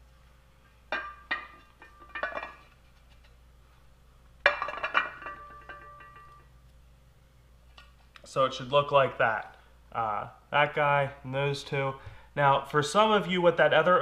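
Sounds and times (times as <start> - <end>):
metal housing clattering on concrete: 0.9 - 2.7, 4.4 - 6.4.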